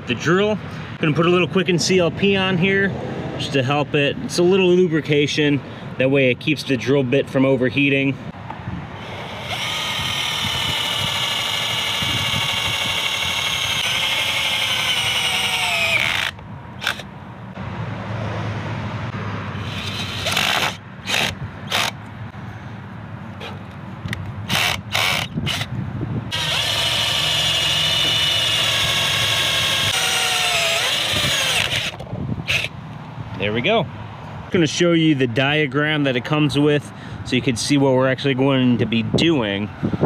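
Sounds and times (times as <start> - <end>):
cordless drill boring steel: 9.0 - 17.1, 19.6 - 22.0, 24.5 - 25.7, 26.3 - 32.7.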